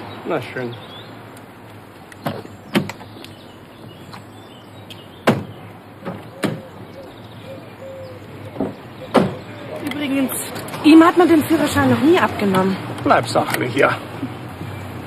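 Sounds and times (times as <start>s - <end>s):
car door slamming: 2.2s - 3.2s, 5.2s - 6.8s, 8.5s - 9.6s.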